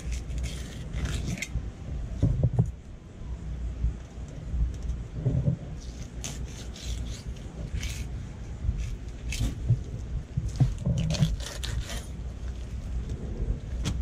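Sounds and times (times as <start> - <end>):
knife scraping through fish: 0.0 - 1.5, 5.8 - 8.1, 10.7 - 12.6
wind rumble on microphone: 0.0 - 14.0.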